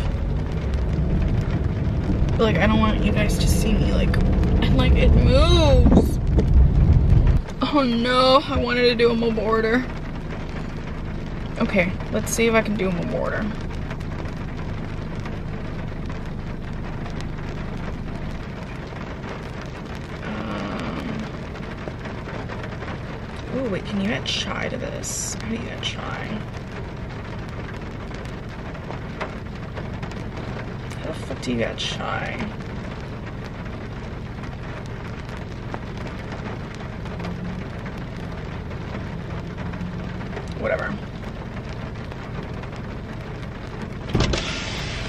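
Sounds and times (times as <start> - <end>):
low steady hum: 0.0 - 45.0
rain on car roof: 0.0 - 45.0.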